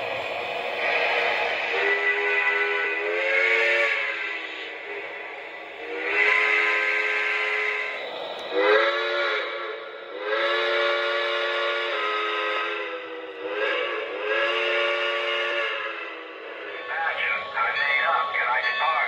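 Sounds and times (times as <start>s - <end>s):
chime steam whistle blasts: 1.7s - 4.7s, 5.8s - 17.5s.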